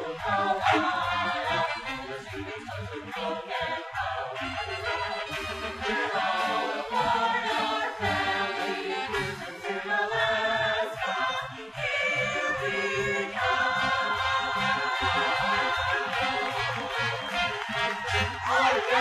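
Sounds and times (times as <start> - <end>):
group singing a show tune: 0.0 - 19.0
band backing music: 13.4 - 19.0.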